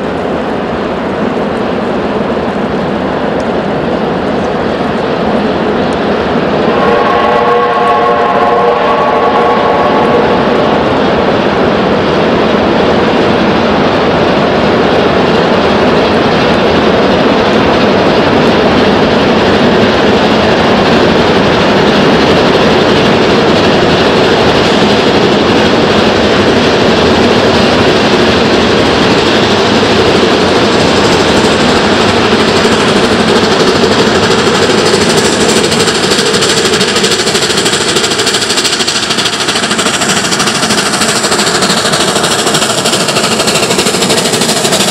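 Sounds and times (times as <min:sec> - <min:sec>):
high steam hiss: 0:00.0 - 0:44.9
steam locomotive exhaust: 0:03.0 - 0:12.4, 0:17.6 - 0:44.9
steam whistle: 0:06.6 - 0:10.5.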